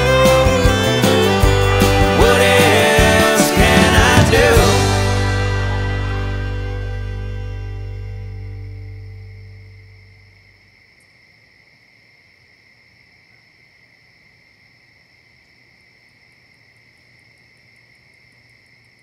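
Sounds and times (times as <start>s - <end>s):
night insects trilling: 8.7s - 19.0s.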